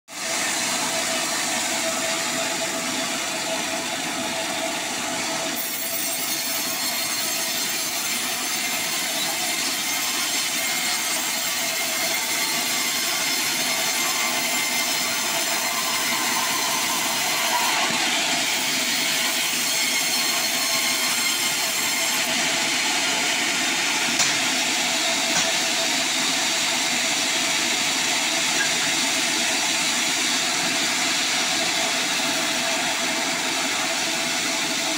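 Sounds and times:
bandsaw cutting log: 5.5s - 26.4s.

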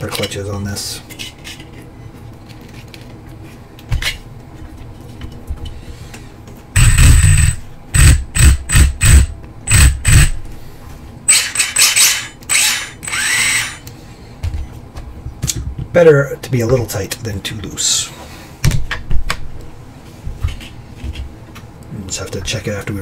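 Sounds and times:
electric motor whining in throttle blips: 6.8s - 10.4s, 11.3s - 13.8s.

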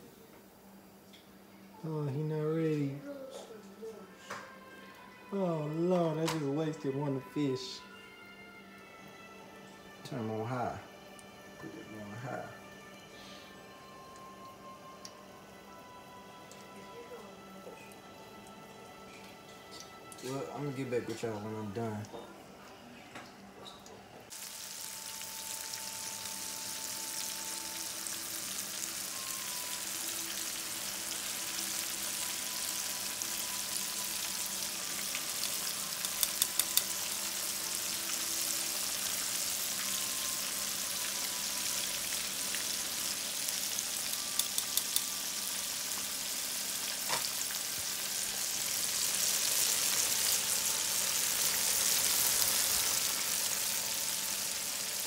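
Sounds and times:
fish frying in oil: 24.3s - 55.0s.

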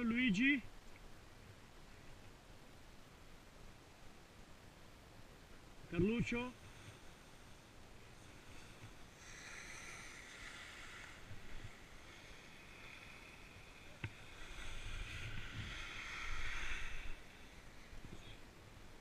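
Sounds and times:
wind rumbling on microphone: 5.8s - 19.0s
skis carving on snow: 6.0s - 18.4s.

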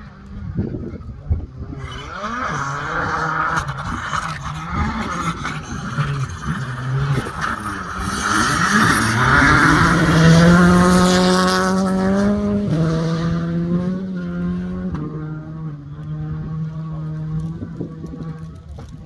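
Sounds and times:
rally car engine revving: 1.3s - 19.0s
tyre noise rush: 1.7s - 13.0s.

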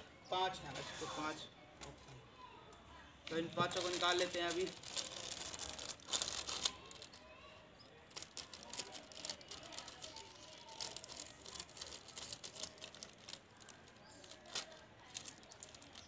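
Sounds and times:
plastic packet crinkling: 3.3s - 7.4s, 8.1s - 16.0s.

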